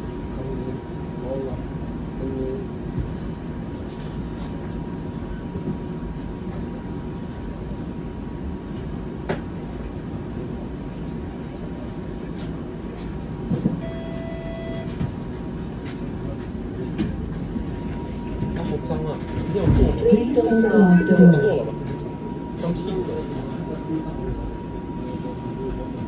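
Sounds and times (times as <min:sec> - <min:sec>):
streetcar rumbling on rails: 0:00.0 - 0:26.0
short electronic tone: 0:13.8 - 0:14.9
faint high whine: 0:17.8 - 0:26.0.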